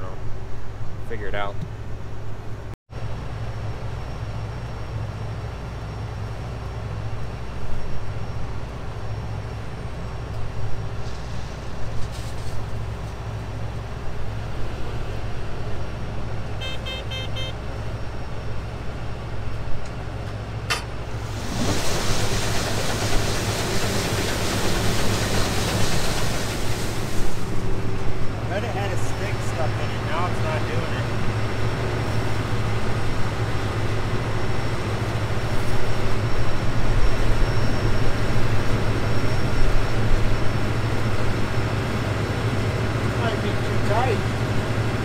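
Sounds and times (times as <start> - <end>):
combine harvester running: 3.0 - 45.0
warning beeps: 16.6 - 17.6.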